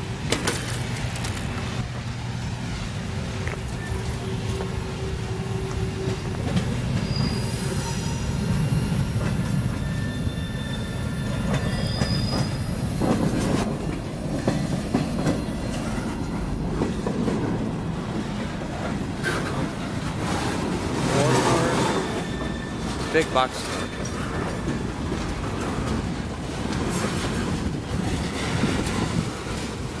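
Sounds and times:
steel wheels rumbling on rails: 0.0 - 30.0
wheels clacking over rail joints: 0.1 - 1.9, 3.2 - 7.4, 11.0 - 30.0
high wheel squeals: 3.7 - 13.1, 20.3 - 25.0.

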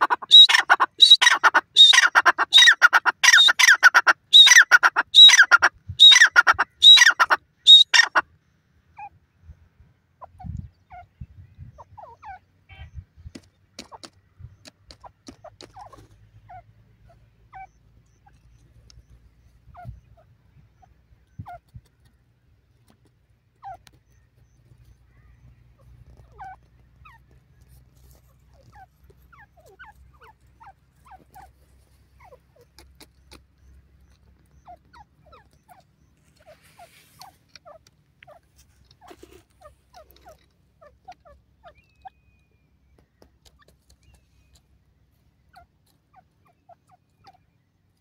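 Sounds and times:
bird squeaky notes: 0.2 - 2.0, 5.2 - 8.1
pecking clicks in dry soil: 13.2 - 16.2, 18.0 - 20.0, 21.2 - 25.0, 25.8 - 48.0.

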